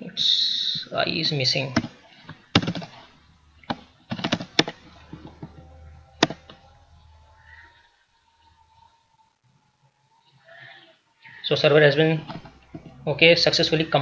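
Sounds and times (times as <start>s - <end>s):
keyboard keystrokes: 3.7s - 4.8s.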